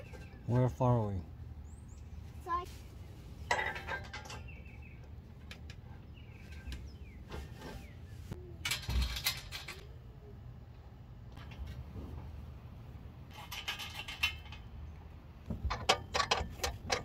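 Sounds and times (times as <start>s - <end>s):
metal bolts clicking and rattling: 3.5s - 6.0s, 8.6s - 10.0s, 11.3s - 11.9s, 13.3s - 17.0s.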